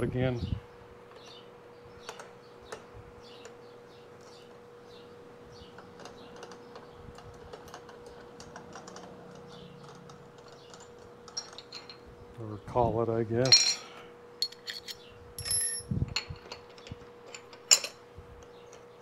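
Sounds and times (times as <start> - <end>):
small metal tools clinking: 7.2 - 12.0, 13.4 - 18.0.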